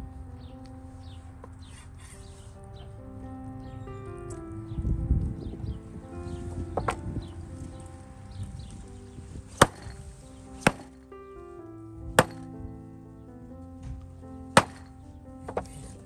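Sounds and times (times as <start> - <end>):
soft background music: 0.0 - 16.0.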